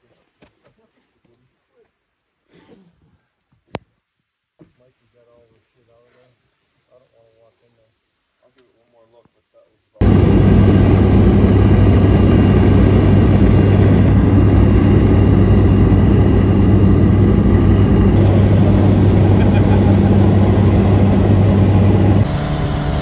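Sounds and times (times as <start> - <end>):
plane engine and propeller droning: 10.0 - 23.0.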